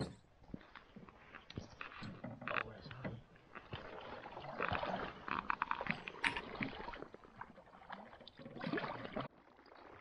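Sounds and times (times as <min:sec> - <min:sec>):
water splashing from paddle: 0:03.4 - 0:10.0.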